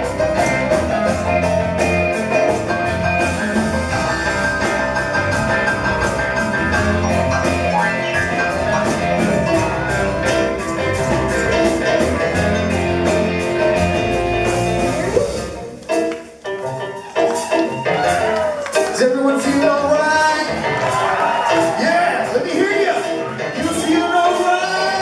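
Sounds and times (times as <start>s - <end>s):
electric guitar: 0.0s - 22.3s
live rock band playing: 0.0s - 25.0s
stage keyboard: 0.0s - 25.0s
steady drum beat: 0.0s - 25.0s.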